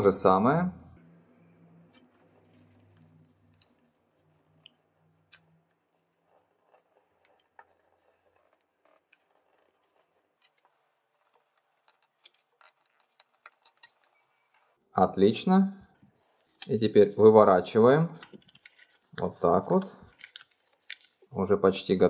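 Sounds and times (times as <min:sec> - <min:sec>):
paper crinkling being folded: 0:18.2 - 0:21.3.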